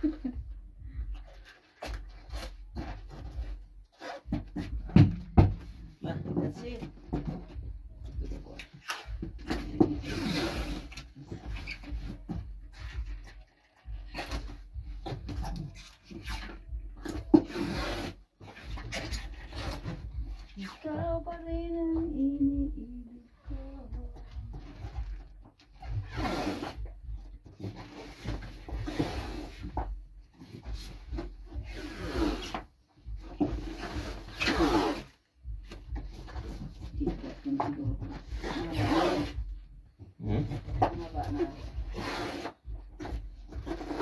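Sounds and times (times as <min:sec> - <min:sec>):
hands rubbing tape on cardboard: 0:08.5 - 0:21.0, 0:25.8 - 0:26.9, 0:27.5 - 0:39.5, 0:40.2 - 0:44.0
packing tape screeching off roll: 0:33.8 - 0:35.2.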